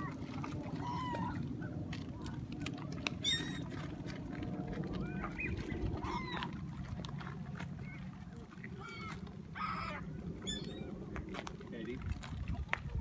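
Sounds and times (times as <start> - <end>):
gulls calling: 0.0 - 2.3, 3.2 - 4.0, 4.9 - 6.7, 8.7 - 11.1
steady low rumble: 0.0 - 13.0.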